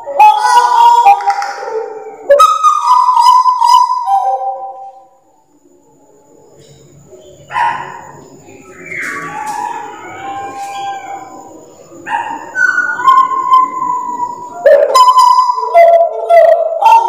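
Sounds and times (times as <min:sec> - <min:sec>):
bird singing whistled notes: 0:08.5 - 0:11.5, 0:12.4 - 0:17.0.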